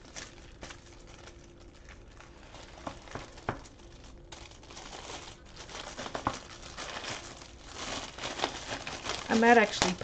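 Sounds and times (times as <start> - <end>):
plastic wrap crinkling: 0.0 - 10.0.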